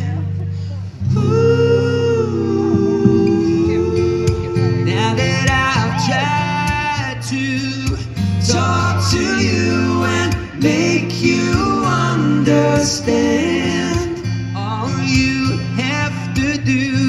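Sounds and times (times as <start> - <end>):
bass line: 0.0 - 17.0
strummed acoustic guitar: 0.0 - 17.0
man singing: 1.0 - 17.0.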